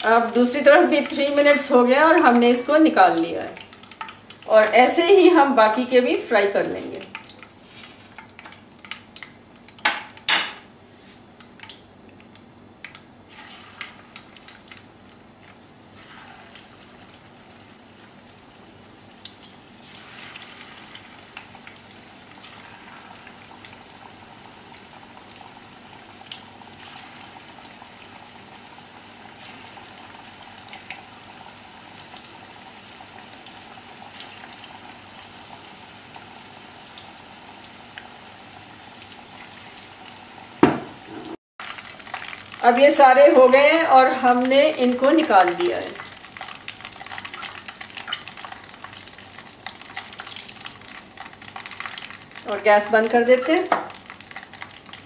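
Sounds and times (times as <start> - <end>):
chicken sizzling in hot oil: 0.0 - 10.4, 13.2 - 55.0
sharp knocks: 40.6 - 41.4.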